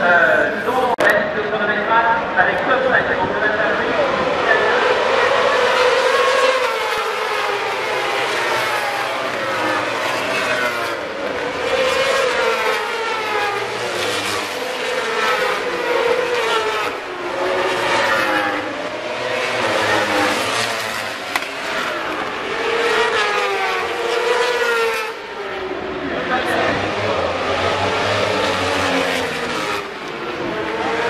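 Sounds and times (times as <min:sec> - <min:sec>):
racing motorcycles at full throttle: 0:00.0 - 0:31.0.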